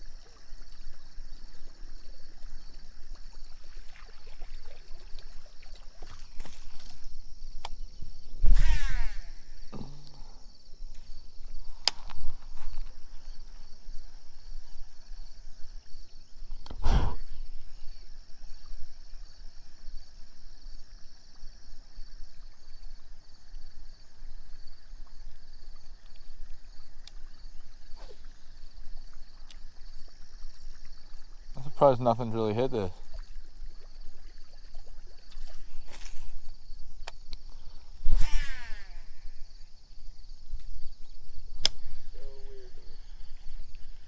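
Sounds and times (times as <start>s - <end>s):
loud thump: 8.5s - 10.3s.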